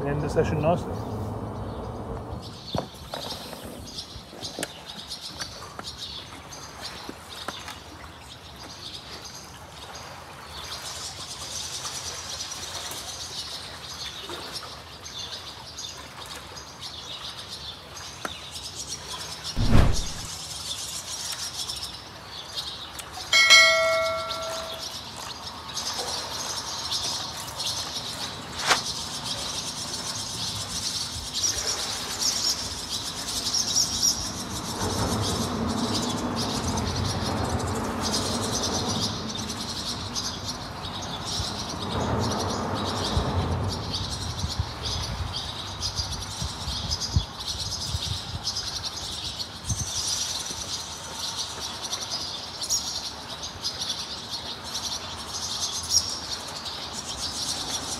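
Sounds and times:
low rumble: 19.6s - 20.3s
bell-like chime: 23.4s - 25.0s.

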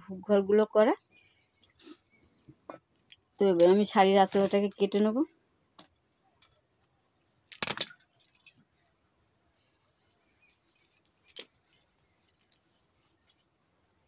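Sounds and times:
bangles jingling: 7.8s - 8.8s, 10.4s - 12.7s.

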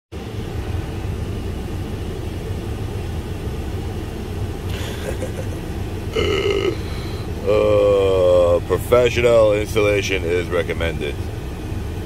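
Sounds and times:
steady low rumble: 0.2s - 12.0s.

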